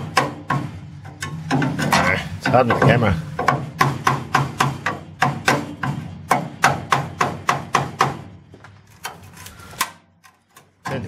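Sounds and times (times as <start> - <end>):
hammer striking chisel into steel: 0.0 - 8.4.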